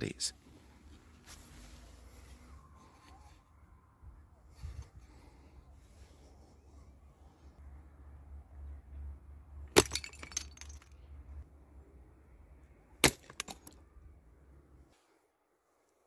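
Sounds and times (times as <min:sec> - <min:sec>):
glass bottles shattering: 0:09.8 - 0:11.0.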